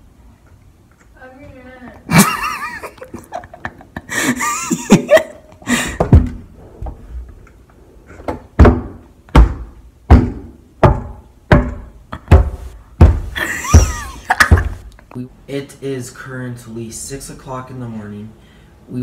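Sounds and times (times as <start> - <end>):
fist pounding on door: 6.0 - 6.4, 8.6 - 14.8.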